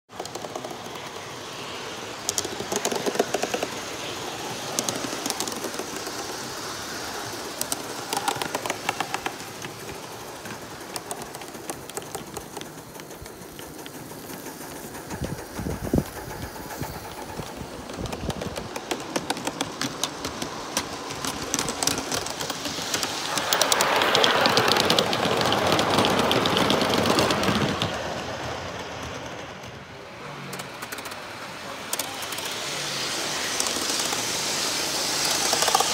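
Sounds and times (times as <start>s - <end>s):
model train wheels clicking and rattling: 0.1s - 35.9s
rushing noise: 0.1s - 35.9s
steady noise: 0.2s - 26.6s.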